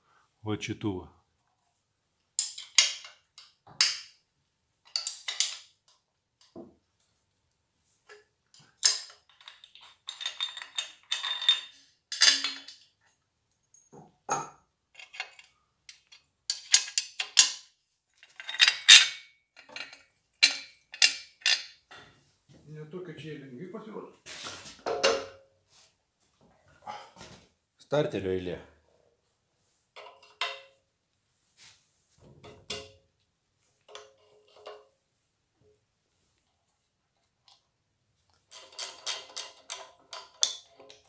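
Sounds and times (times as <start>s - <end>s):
metal tools clinking and rattling: 2.4s - 4.1s, 4.8s - 5.8s, 8.1s - 13.0s, 14.9s - 22.2s, 30.0s - 30.8s, 33.8s - 34.9s, 38.4s - 41.0s.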